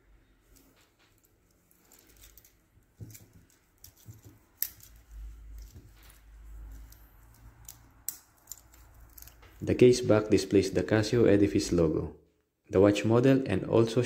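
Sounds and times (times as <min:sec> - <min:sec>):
watch bracelet clicks and clinks: 0:00.5 - 0:09.6.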